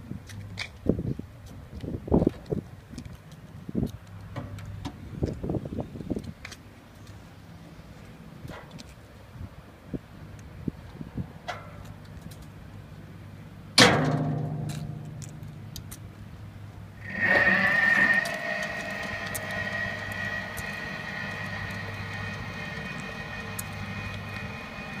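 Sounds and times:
electric motor whine: 17.0s - 25.0s.

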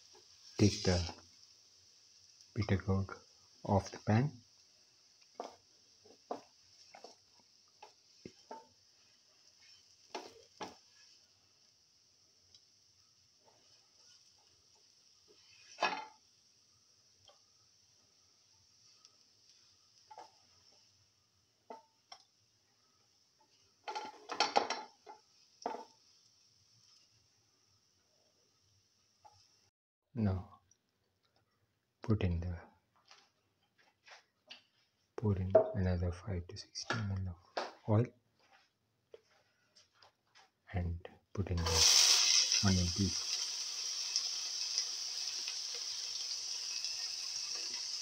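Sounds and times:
spatula scraping a frying pan: 5.2s - 11.8s, 13.3s - 16.4s, 18.6s - 22.3s, 23.0s - 27.4s.

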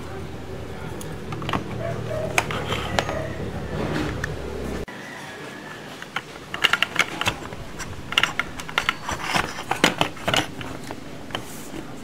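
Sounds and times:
plastic toy clicking: 6.0s - 11.9s.

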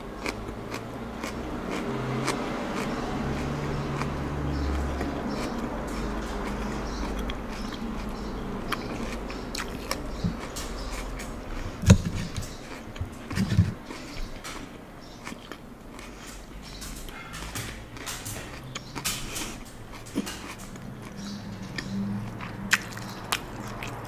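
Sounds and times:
chewing with wet mouth clicks: 0.0s - 24.0s.

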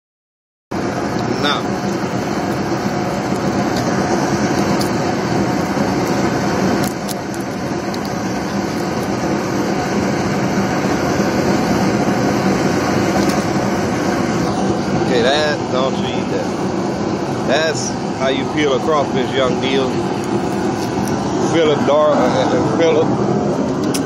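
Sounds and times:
mechanical hum and hiss: 0.7s - 24.0s.

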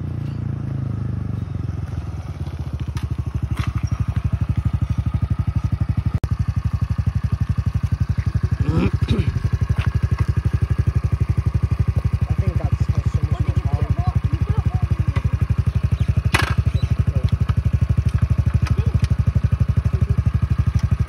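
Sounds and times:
motorcycle engine idling: 0.0s - 21.0s.

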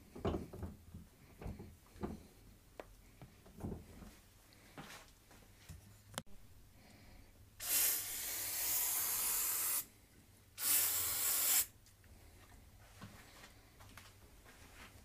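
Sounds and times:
aerosol spray can hissing: 7.6s - 9.9s, 10.6s - 11.7s.

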